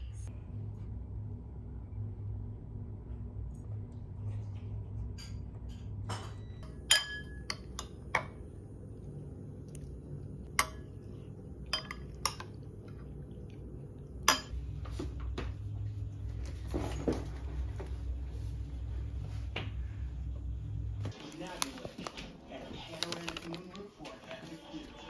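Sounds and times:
spoon clinking ceramic bowl: 0:06.1 - 0:08.4, 0:10.5 - 0:13.1, 0:14.2 - 0:14.6.

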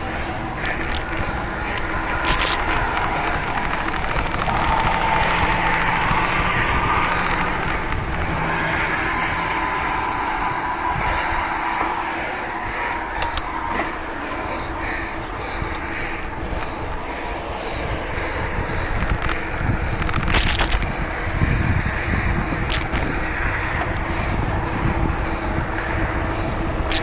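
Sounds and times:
bicycle rolling and wind rush: 0:00.0 - 0:27.0
bike clicks: 0:00.0 - 0:27.0.

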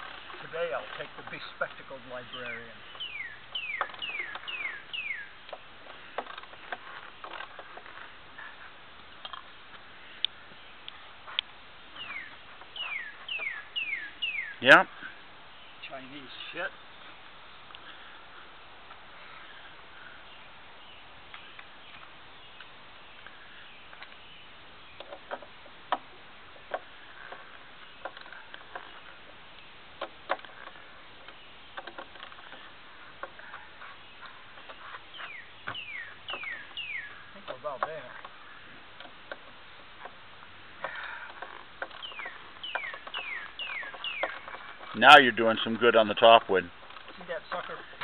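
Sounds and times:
clicks and knocks on wooden frame: 0:30.0 - 0:36.8, 0:37.4 - 0:40.2.

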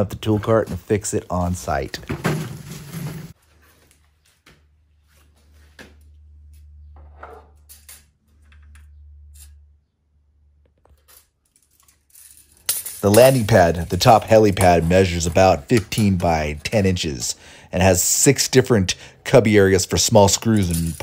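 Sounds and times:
handling clicks and knocks: 0:12.6 - 0:16.8, 0:20.4 - 0:21.0.

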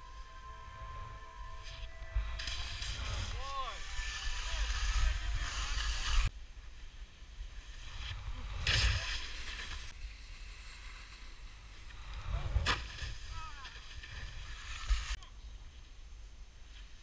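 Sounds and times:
skis scraping over snow: 0:01.6 - 0:15.2.

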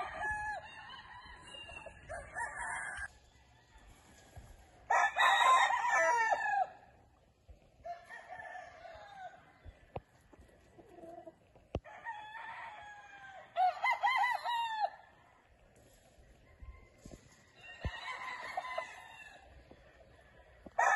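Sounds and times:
rooster crowing: 0:00.0 - 0:03.9, 0:04.9 - 0:06.8, 0:07.8 - 0:09.4, 0:11.8 - 0:15.0, 0:16.7 - 0:19.5.

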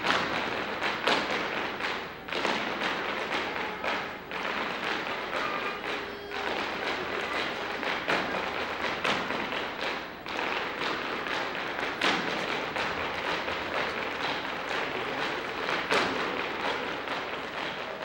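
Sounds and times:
loud foot stamps: 0:00.0 - 0:05.5, 0:06.4 - 0:18.0
hard shoes tapping on stage: 0:00.0 - 0:18.0.

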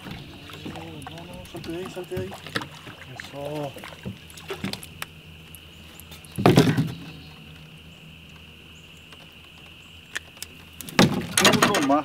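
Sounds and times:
fish thumping in a kayak: 0:00.0 - 0:05.3, 0:06.1 - 0:07.4, 0:10.8 - 0:12.0.

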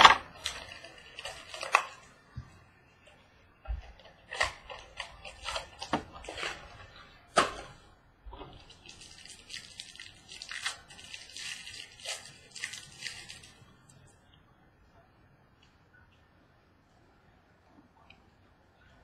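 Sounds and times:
cards rustling: 0:00.0 - 0:02.2, 0:03.8 - 0:07.8, 0:08.5 - 0:14.0.

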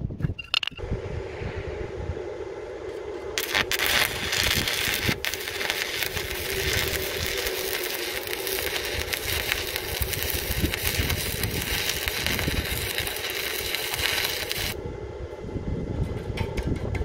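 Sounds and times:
welding arc sizzling and crackling: 0:03.4 - 0:14.8.

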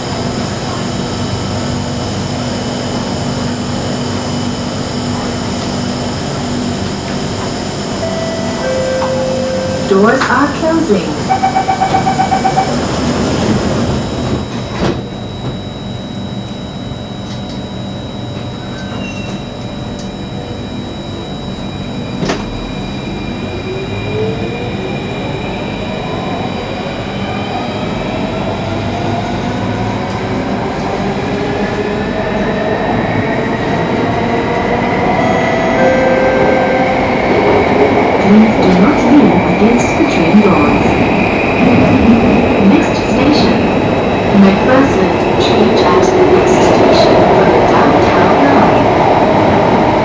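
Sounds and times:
train doors shutting: 0:04.4 - 0:16.6, 0:17.2 - 0:20.4, 0:21.5 - 0:23.5, 0:28.4 - 0:50.0
door-closing chime beeping: 0:08.0 - 0:10.5, 0:11.2 - 0:12.8.

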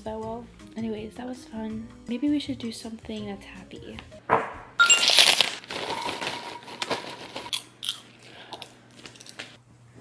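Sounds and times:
snack bag rustling: 0:04.9 - 0:09.6.

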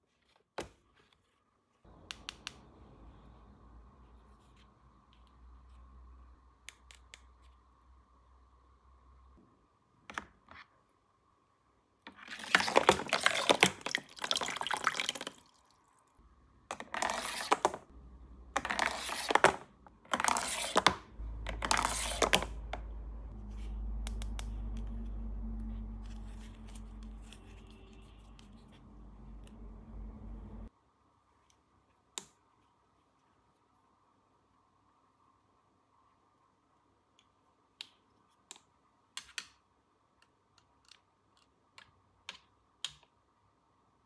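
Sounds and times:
water pouring and splashing: 0:12.4 - 0:16.1.

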